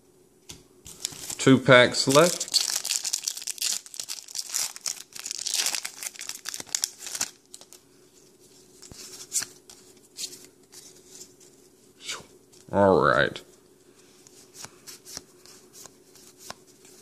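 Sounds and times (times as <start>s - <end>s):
cards handling: 0.5s - 7.8s, 14.2s - 17.0s
foil wrapper crinkling and tearing: 0.9s - 7.8s.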